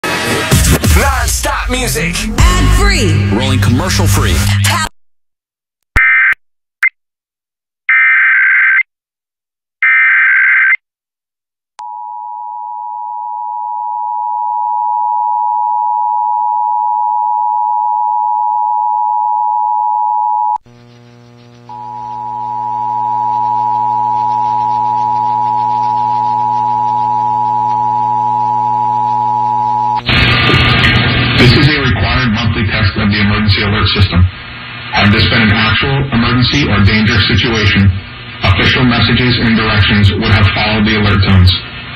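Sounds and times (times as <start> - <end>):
low hum: 20.7 - 31.7.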